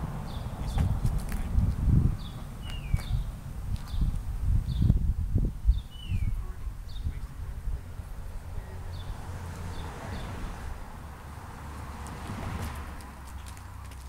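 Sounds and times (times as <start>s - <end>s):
small birds chirping: 0.2s - 5.0s, 5.6s - 10.6s.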